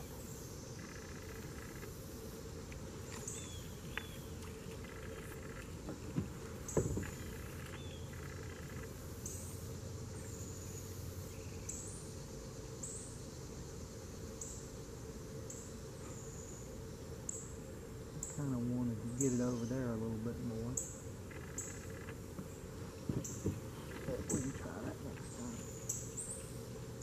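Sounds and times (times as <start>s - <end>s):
insect high buzz: 0.0s - 27.0s
insects calling: 0.0s - 27.0s
short knocks: 22.4s - 25.0s.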